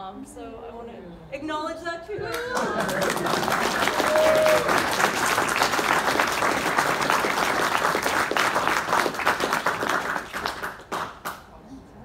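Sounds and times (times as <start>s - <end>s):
audience applauding: 2.3s - 11.4s.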